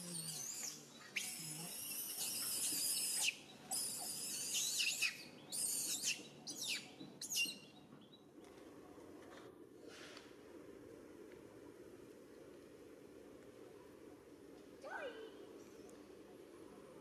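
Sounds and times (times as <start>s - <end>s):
high-pitched squealing animal calls: 0.2s - 7.6s.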